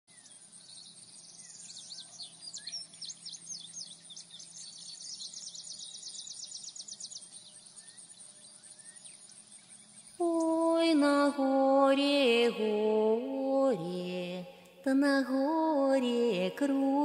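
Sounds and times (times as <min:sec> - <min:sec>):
birds chirping and whistling: 0:00.1 - 0:10.6.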